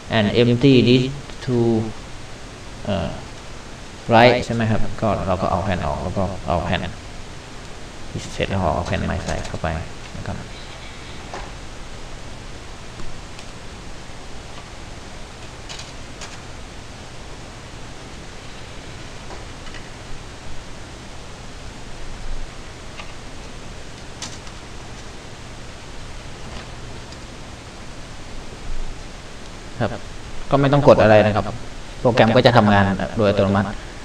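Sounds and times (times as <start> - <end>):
steady hiss: 0.0 - 34.0
disc trays clicking shut: 15.4 - 16.5, 24.0 - 25.1.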